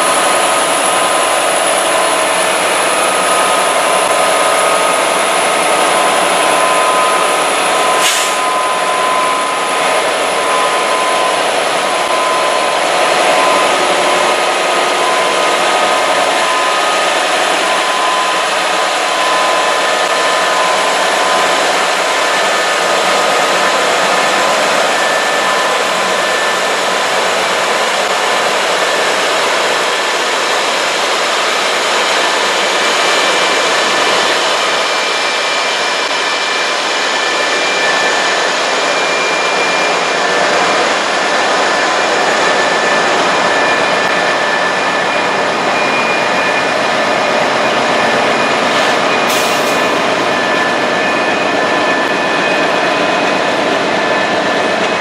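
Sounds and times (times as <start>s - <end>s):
diesel locomotives rolling past: 0.0s - 55.0s
steady high tones: 0.0s - 55.0s.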